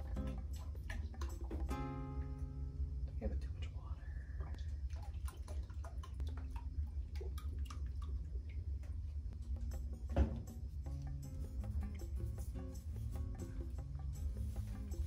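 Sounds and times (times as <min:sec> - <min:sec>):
water splashing in a tub: 0:00.0 - 0:01.8, 0:04.5 - 0:09.4.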